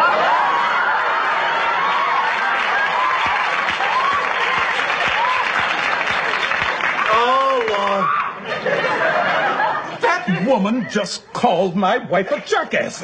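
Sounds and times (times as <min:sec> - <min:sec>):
audience applauding: 0:00.0 - 0:08.4
audience laughing: 0:07.8 - 0:11.2.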